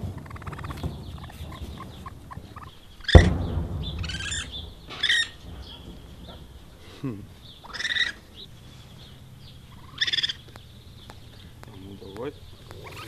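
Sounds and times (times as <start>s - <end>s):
high squeals: 0.0s - 10.5s
young raccoons chirping: 0.0s - 13.0s
loud thump: 3.0s - 6.9s.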